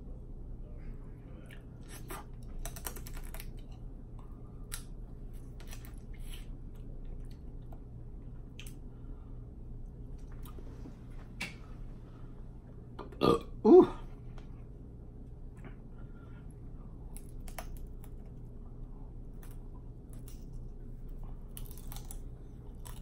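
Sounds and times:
crab shells cracking: 21.6 - 23.0.

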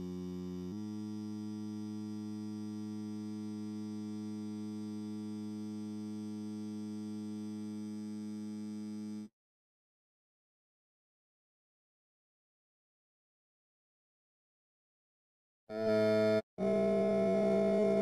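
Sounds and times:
low steady electronic tone: 0.0 - 9.3.

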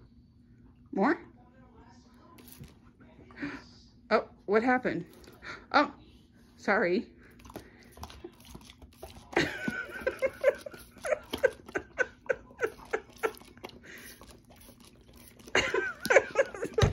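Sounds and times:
dog snapping and gulping: 7.3 - 12.0, 12.6 - 16.9
person giggling: 9.4 - 13.6, 15.5 - 16.9.

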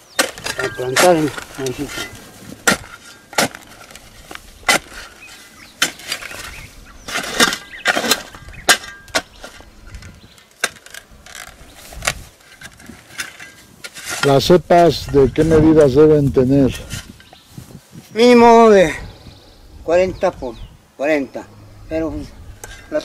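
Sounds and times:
shovel digging stony soil: 0.0 - 17.2.

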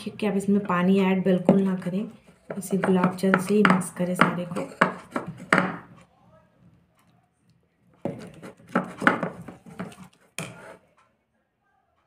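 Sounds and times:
woman speaking: 0.0 - 4.8
plastic spoon scraping a bowl: 1.8 - 6.0, 8.0 - 10.9.

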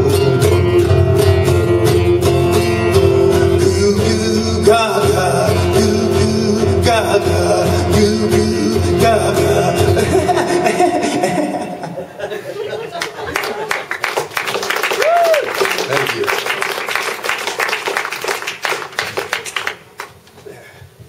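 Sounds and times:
acoustic guitar strumming: 0.0 - 11.8.

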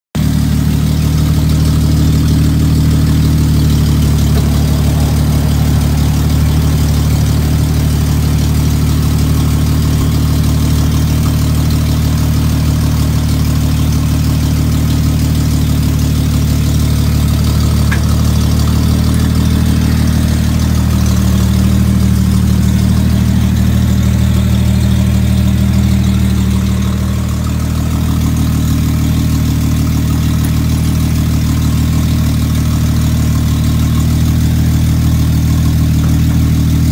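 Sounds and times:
pickup engine idling: 0.2 - 36.9.

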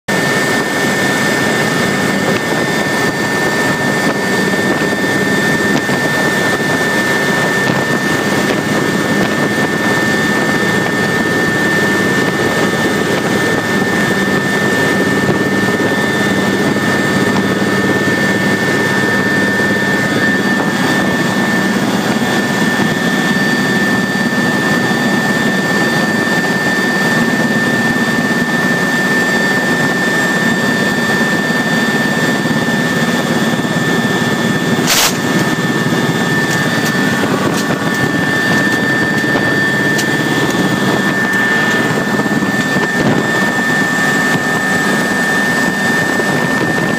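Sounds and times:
jet engine running: 0.1 - 46.9.

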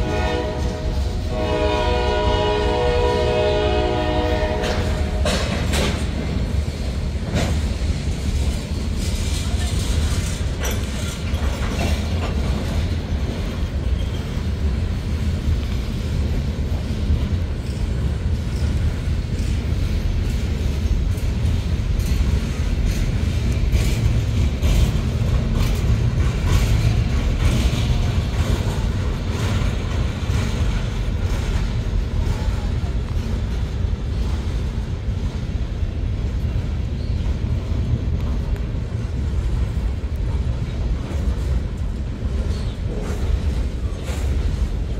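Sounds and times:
freight train wheels rumbling: 0.0 - 44.9
wheels and couplers clacking: 7.2 - 15.8.

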